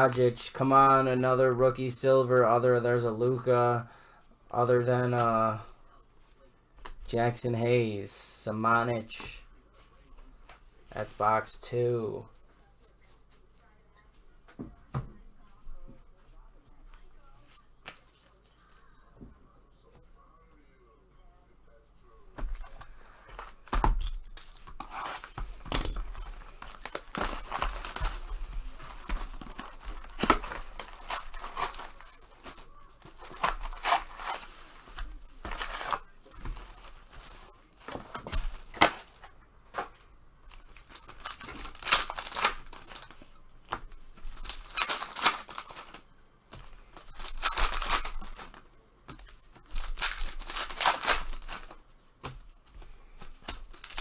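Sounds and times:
wrappers tearing and crinkling: 0:24.2 - 0:39.9, 0:40.5 - 0:43.4, 0:44.0 - 0:48.6, 0:49.2 - 0:51.8, 0:53.2 - 0:54.0.

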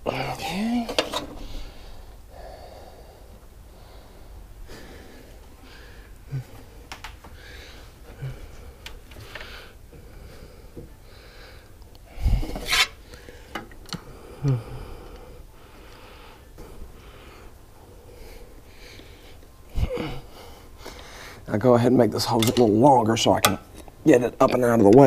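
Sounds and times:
man breathing heavily: 0:00.0 - 0:21.5.

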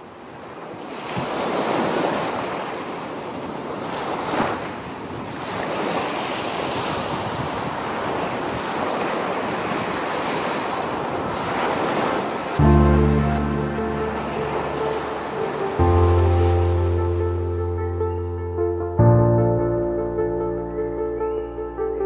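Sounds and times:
surf breaking on shore: 0:00.6 - 0:17.5
wind buffeting microphone: 0:04.2 - 0:12.7.

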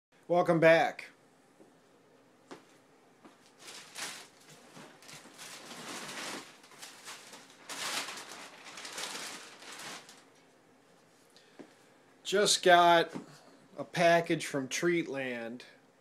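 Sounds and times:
packaging rustling and crinkling: 0:03.4 - 0:10.4.

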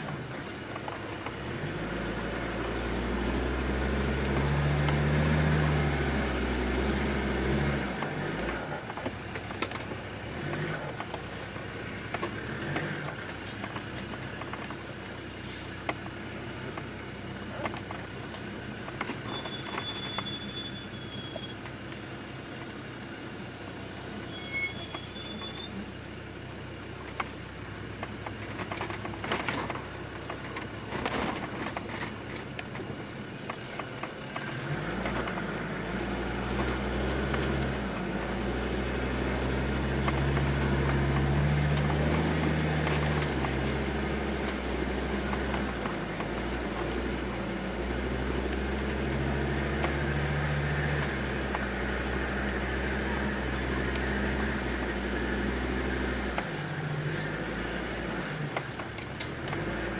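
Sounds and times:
diesel engine revving: 0:00.0 - 0:59.9
vehicle clunks: 0:08.0 - 0:22.8, 0:27.0 - 0:38.4, 0:39.8 - 0:47.6.

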